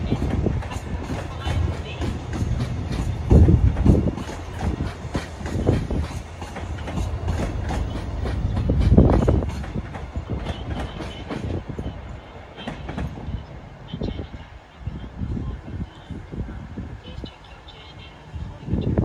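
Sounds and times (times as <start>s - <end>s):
train wheels clattering on rails: 0.0s - 13.3s
train engine rumble: 0.0s - 19.0s.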